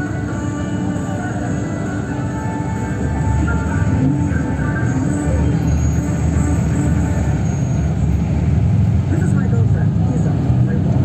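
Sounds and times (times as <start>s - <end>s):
music on a radio: 0.0s - 8.4s
bus engine rumble: 0.0s - 11.0s.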